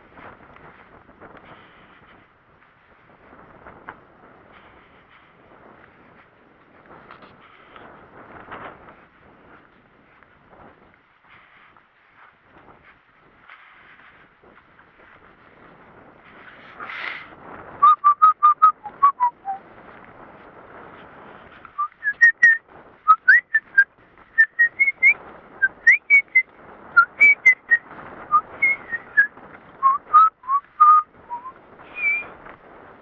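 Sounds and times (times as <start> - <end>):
person whistling a tune: 17.8 - 19.6, 21.8 - 26.4, 27.0 - 32.3.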